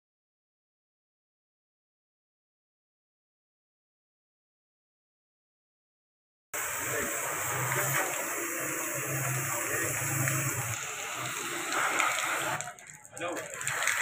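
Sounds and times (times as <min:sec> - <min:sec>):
pressure washer spraying metal: 0:06.6 - 0:14.0.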